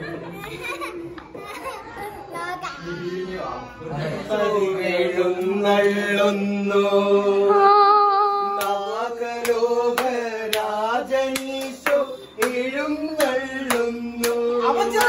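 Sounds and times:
voices singing slow chant: 3.8 - 15.0
hand claps: 8.6 - 15.0.

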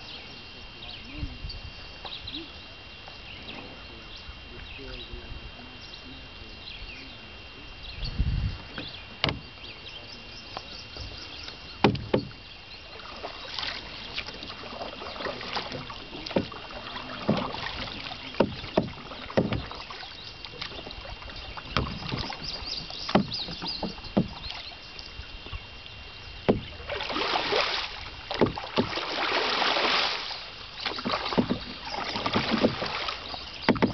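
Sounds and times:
paddle pulling through water: 0.0 - 33.9
paddle knocking canoe hull: 8.6 - 33.9
loud splashing strokes: 26.5 - 33.9.

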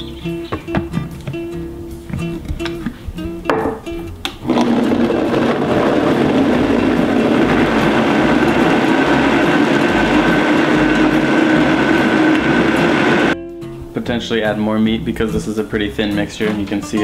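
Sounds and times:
blender motor running: 4.4 - 13.4.

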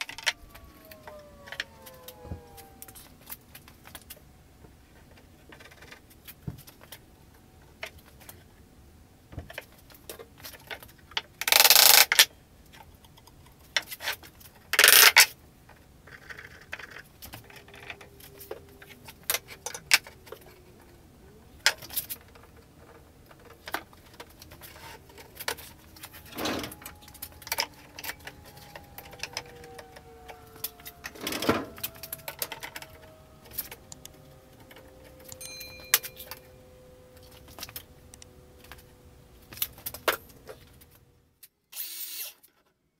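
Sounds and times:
faint drawn-out squeaks: 0.0 - 6.4, 16.0 - 41.1
knocks and metallic clinks: 25.4 - 38.7.

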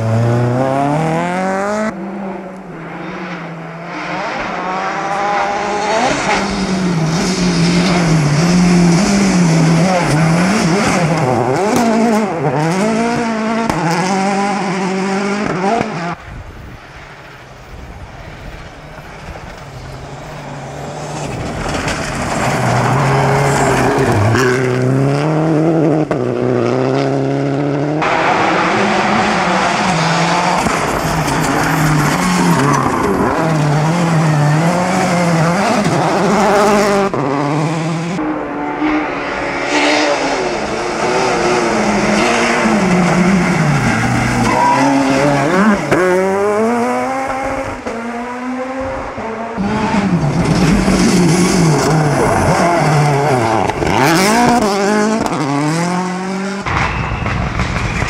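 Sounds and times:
rally car engines revving hard: 0.0 - 16.2, 20.0 - 58.0.

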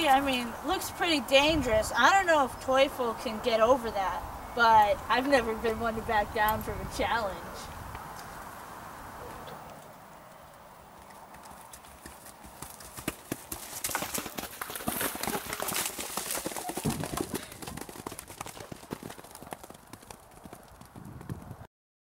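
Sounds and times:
horse hooves cantering on turf: 10.9 - 21.6.

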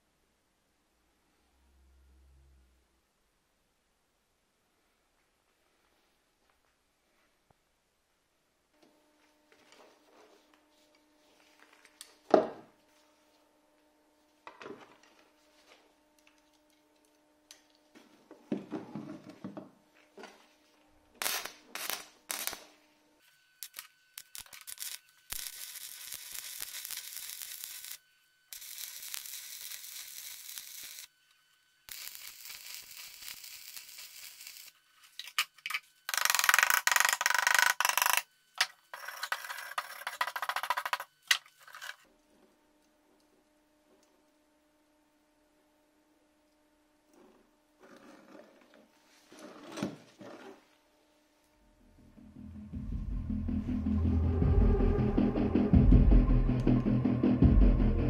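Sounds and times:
welding arc crackling and hissing: 21.2 - 22.8, 23.6 - 31.1, 31.8 - 42.0.

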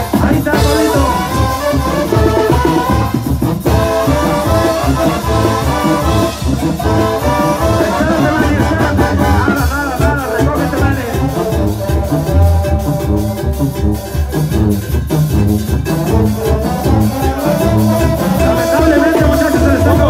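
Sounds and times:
latin band music with brass: 0.0 - 20.0
person singing: 6.2 - 14.5, 16.1 - 20.0.

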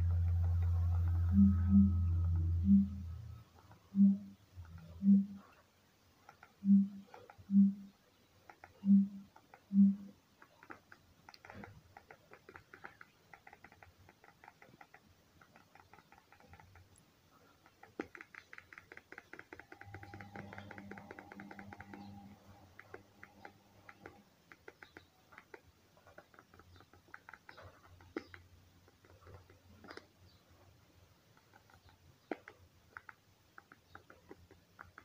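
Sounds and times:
low hum: 0.0 - 5.6, 6.6 - 7.9, 8.8 - 10.1, 19.6 - 24.3
faint rapid clicking: 0.0 - 35.0.

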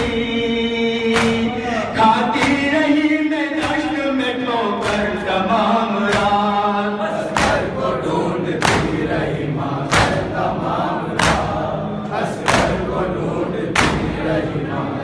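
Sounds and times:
men chanting in unison: 0.0 - 15.0
hands slapping chests: 1.1 - 1.5, 2.4 - 2.7, 3.6 - 4.0, 4.8 - 5.3, 6.1 - 6.5, 7.2 - 7.8, 8.6 - 9.1, 9.9 - 10.3, 11.2 - 11.6, 12.4 - 12.8, 13.8 - 14.1.

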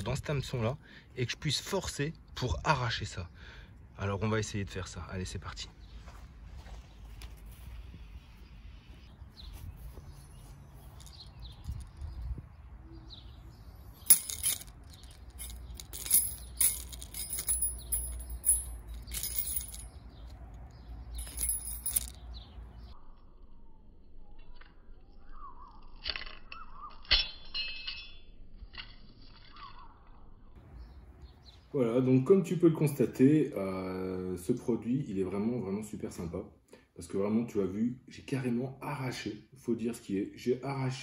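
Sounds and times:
metal lure retriever clinking: 13.8 - 20.4, 21.1 - 22.3.

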